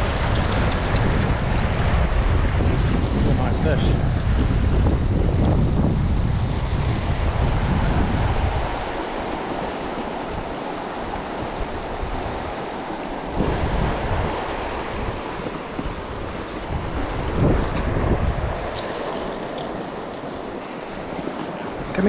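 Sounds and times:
river rushing over stones: 0.0s - 22.0s
wind buffeting microphone: 0.0s - 22.0s.

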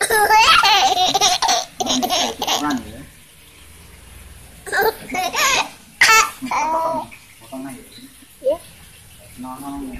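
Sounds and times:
toddler laughing and babbling: 0.0s - 2.8s, 4.7s - 7.0s.

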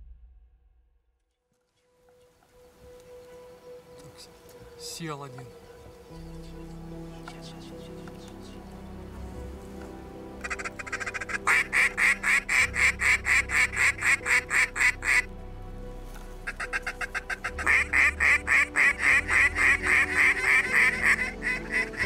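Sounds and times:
faint background music: 1.5s - 22.0s
rapid duck quacks: 10.4s - 15.3s, 16.5s - 22.0s.

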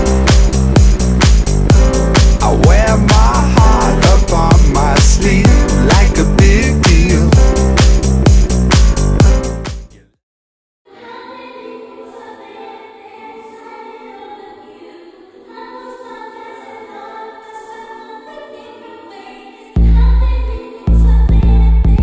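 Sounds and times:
dance track with steady beat: 0.0s - 10.0s
slow choral music: 1.8s - 7.7s, 10.9s - 21.8s.

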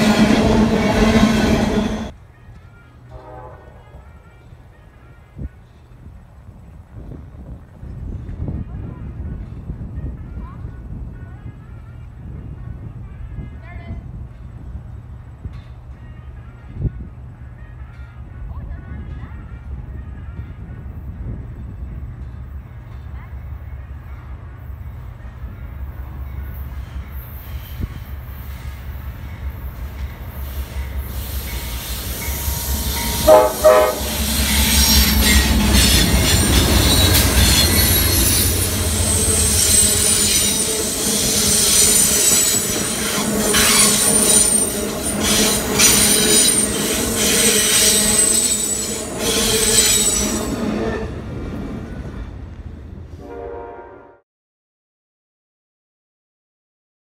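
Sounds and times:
high wheel squeal: 0.0s - 2.1s, 30.4s - 51.1s
train horn blast: 0.0s - 2.1s, 2.8s - 5.7s, 30.5s - 51.3s, 53.2s - 54.2s
diesel locomotive rumble: 0.0s - 2.2s, 25.2s - 53.2s
rail clicks: 0.0s - 3.4s, 26.0s - 52.8s.

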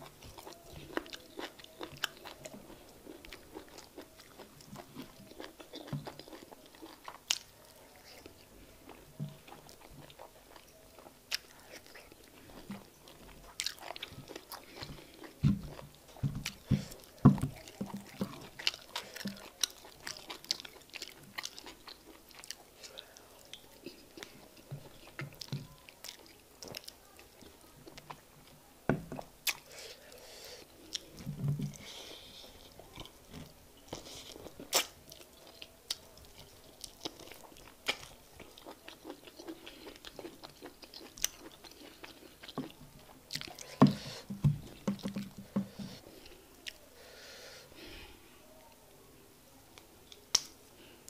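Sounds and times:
fingers squishing through soup: 0.0s - 28.2s
wet chewing and smacking: 0.0s - 28.2s, 30.9s - 46.0s.

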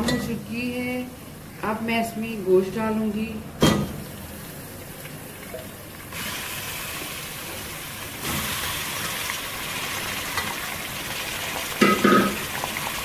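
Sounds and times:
meat sizzling in hot oil: 4.2s - 13.0s.

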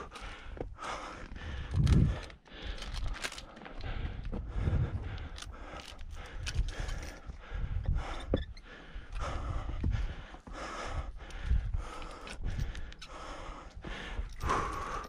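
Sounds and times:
heavy panting breaths: 0.0s - 15.0s
wind rumble on microphone: 1.4s - 2.3s, 3.8s - 5.5s, 6.1s - 12.9s.

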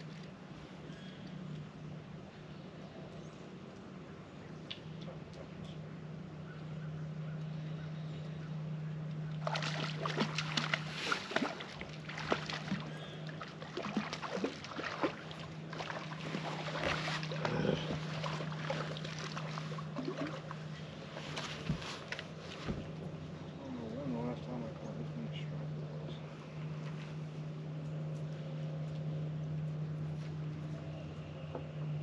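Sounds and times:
steady low hum: 0.0s - 32.0s
fish splashing at surface: 9.4s - 20.5s.

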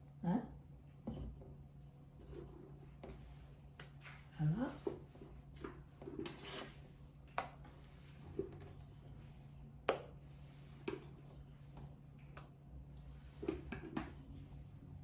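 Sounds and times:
spatula scraping a metal bowl: 6.0s - 6.9s.

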